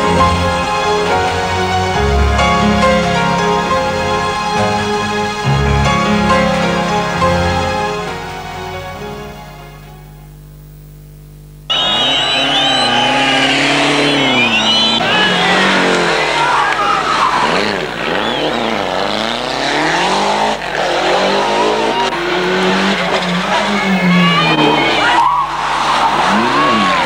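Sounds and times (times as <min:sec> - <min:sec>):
tyres squealing: 0:11.7 - 0:19.0
rally car engine revving: 0:11.7 - 0:27.0.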